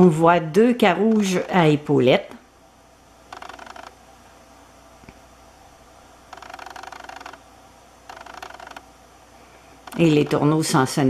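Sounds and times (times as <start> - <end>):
camera zoom motor whirring: 3.3 - 4.0, 6.2 - 8.9.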